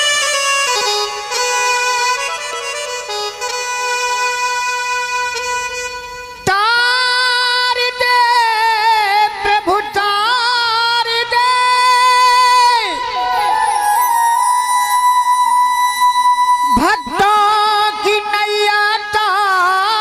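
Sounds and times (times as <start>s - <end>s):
man singing into a microphone: 6.4s - 13.8s, 16.4s - 20.0s
reedy instrument chords: 13.1s - 17.1s.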